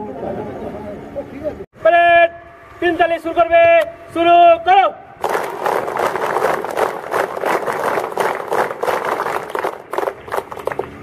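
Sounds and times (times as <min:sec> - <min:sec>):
crowd applauding: 0:05.2 - 0:10.9.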